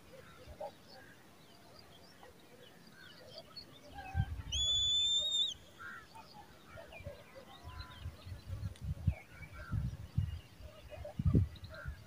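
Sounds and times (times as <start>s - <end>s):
eagle chick whistled call: 4.5s - 5.6s.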